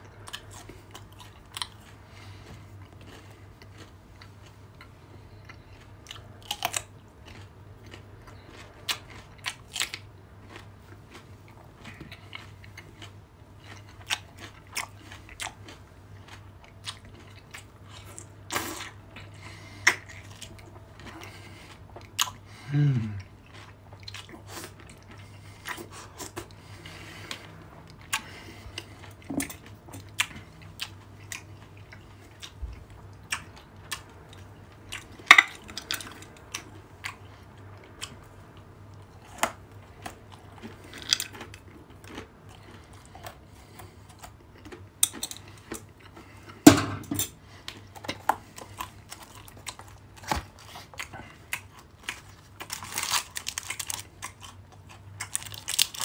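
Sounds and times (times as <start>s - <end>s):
wet chewing: 0.0s - 56.0s
crunching nuts: 0.2s - 22.7s, 38.9s - 56.0s.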